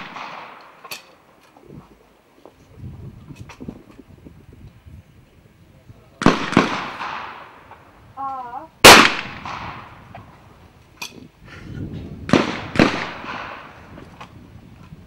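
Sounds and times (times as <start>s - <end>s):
shotgun shots echoing: 0.0s - 1.1s, 6.2s - 7.8s, 8.8s - 10.0s, 12.3s - 13.8s
person calling: 8.2s - 8.8s.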